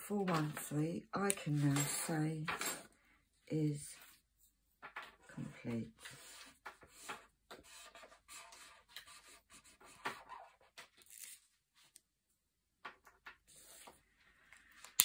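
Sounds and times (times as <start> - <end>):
pen scratching on paper: 6.0 - 10.7.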